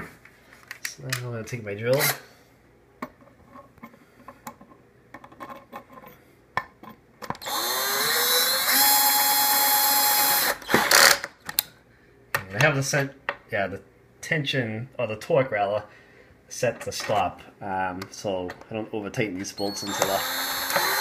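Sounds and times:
power drill whine: 7.4 - 11.2, 19.6 - 21.0.

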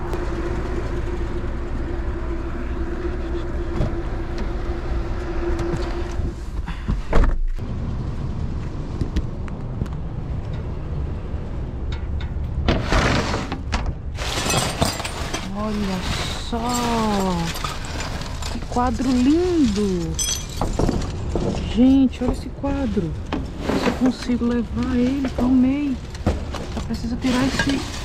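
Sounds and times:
rustling and scraping: 12.6 - 28.0.

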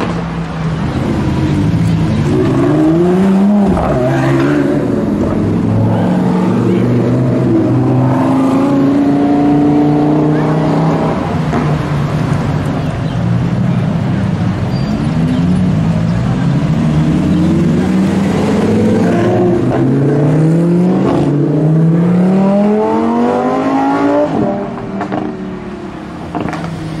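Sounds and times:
sports car engine accelerating: 15.1 - 26.8.

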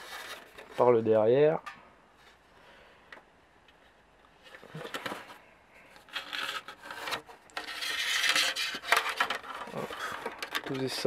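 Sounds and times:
hands handling hard plastic: 3.1 - 11.0.

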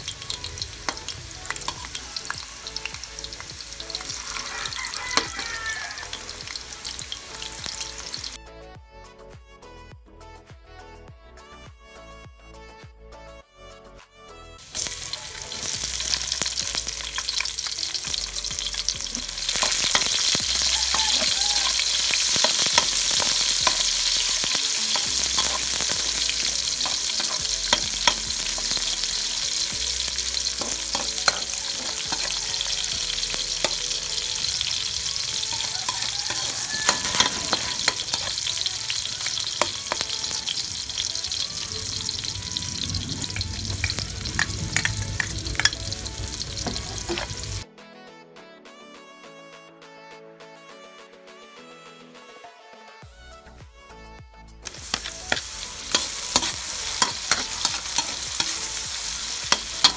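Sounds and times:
onions sizzling in hot oil: 0.0 - 8.4, 14.6 - 47.6, 54.6 - 59.9
spatula scraping a wok: 14.6 - 41.4, 43.3 - 47.6, 54.7 - 59.9.

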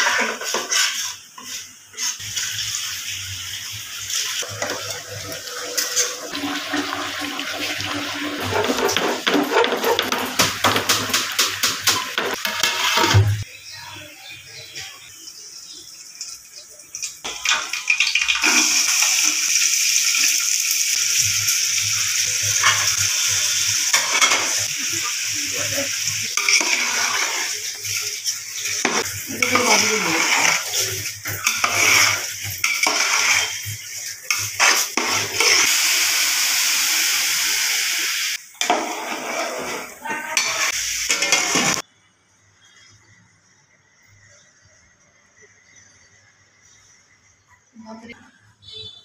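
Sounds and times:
rice sizzling in hot oil: 0.0 - 41.9
metal spoon scraping a pot: 8.2 - 10.2, 22.5 - 24.7, 26.3 - 35.7.

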